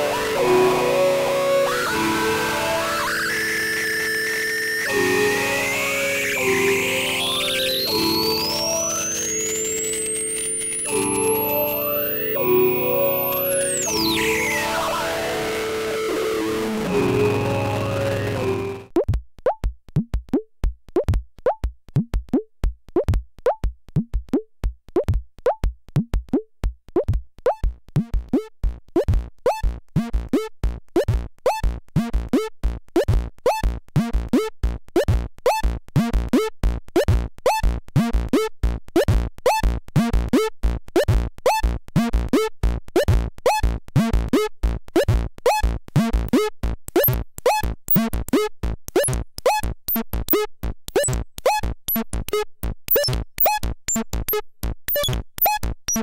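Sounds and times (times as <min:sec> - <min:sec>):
synthesizer clicky hits with pings: 0:52.9 - 0:56.0.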